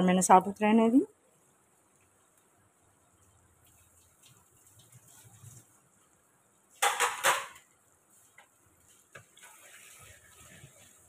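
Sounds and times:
cookware clanking: 6.8s - 7.7s.

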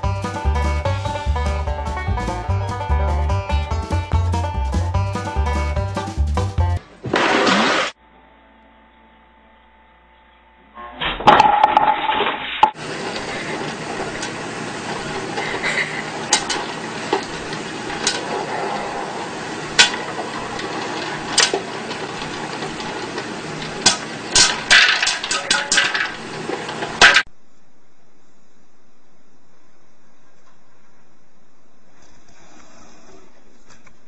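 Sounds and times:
steady hiss: 12.8s - 33.1s.

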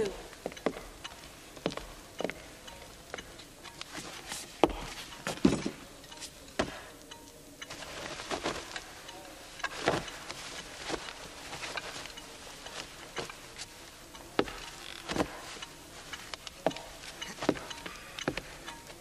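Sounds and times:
footsteps and handling knocks: 0.4s - 2.4s, 3.1s - 6.9s, 7.7s - 8.9s, 9.6s - 19.0s
cloth rustling: 7.6s - 19.0s.

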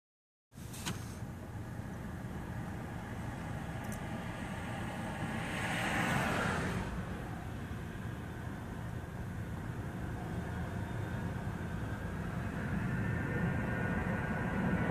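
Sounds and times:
car road and tyre noise: 0.5s - 14.9s
vehicle passing close: 2.4s - 8.6s.

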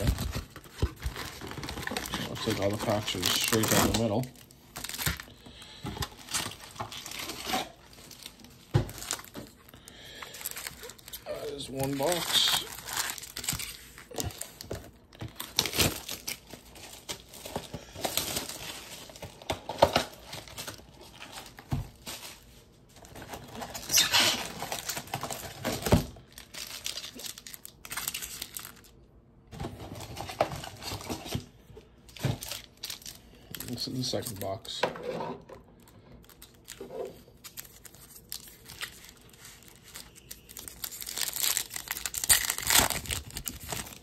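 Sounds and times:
plastic wrappers crinkling: 0.0s - 34.8s, 35.6s - 44.0s.

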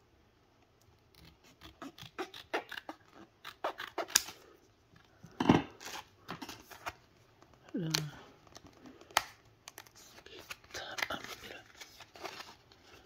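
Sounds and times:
scissors snipping packaging: 1.1s - 4.4s.

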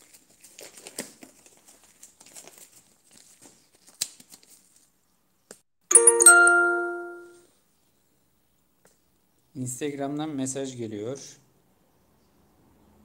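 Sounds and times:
smartphone notification chime: 5.9s - 7.4s.

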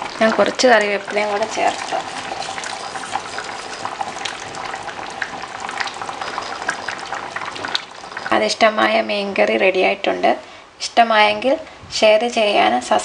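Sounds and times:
curry bubbling and popping: 0.0s - 9.5s.

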